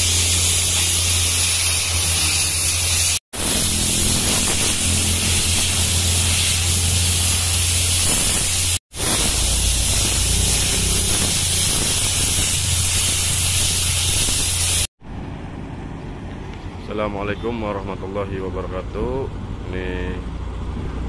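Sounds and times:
compressed air hissing: 0.0s - 14.9s
low engine hum: 15.0s - 21.0s.

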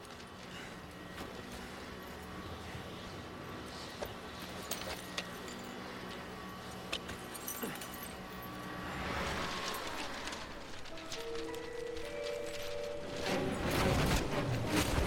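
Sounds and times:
rushing noise: 8.5s - 15.0s.

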